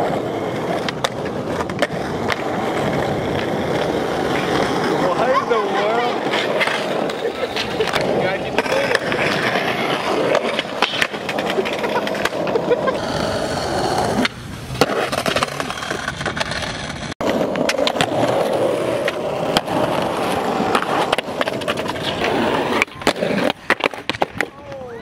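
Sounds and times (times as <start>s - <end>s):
skateboard clacking on ground: 0.0s - 25.0s
skateboard wheels rolling on pavement: 0.0s - 25.0s.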